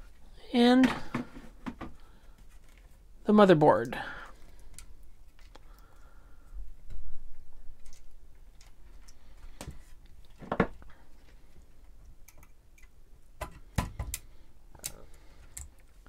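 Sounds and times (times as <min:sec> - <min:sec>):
plastic computer parts clicking and knocking: 0:12.2 - 0:15.9.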